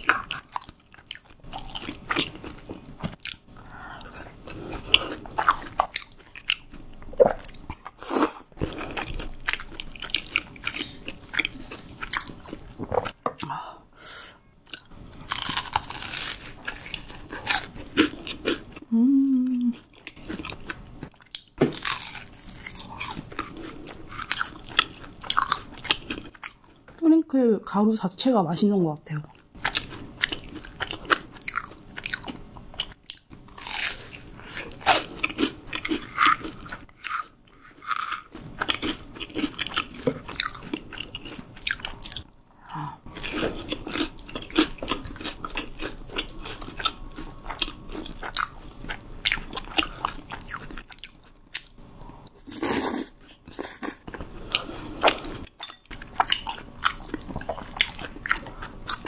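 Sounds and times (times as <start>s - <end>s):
crunching fried food: 0.0s - 3.5s, 14.8s - 18.8s, 20.0s - 26.8s, 29.6s - 42.3s, 43.1s - 51.8s.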